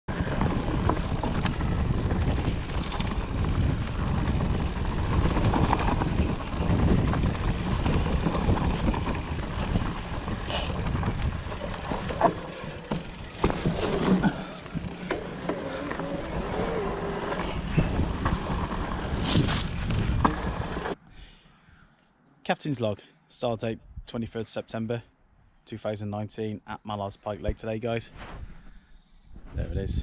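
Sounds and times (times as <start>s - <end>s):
wind on microphone: 0.1s - 12.4s, 16.2s - 21.0s, 29.3s - 30.0s
bike knocks and rattles: 0.1s - 21.0s
tyres on dirt trail: 0.1s - 21.6s.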